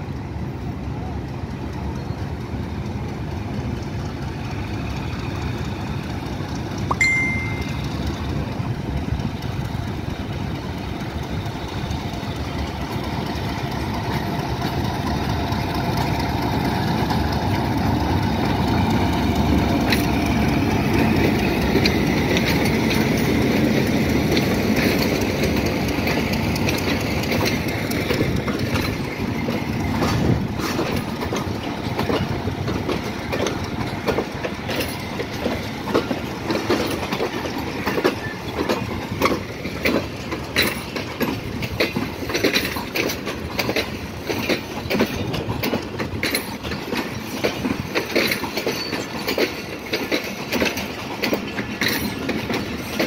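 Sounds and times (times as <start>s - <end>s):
diesel locomotive engine drone: 0.0s - 53.0s
wheel clicks on rails: 21.0s - 53.0s.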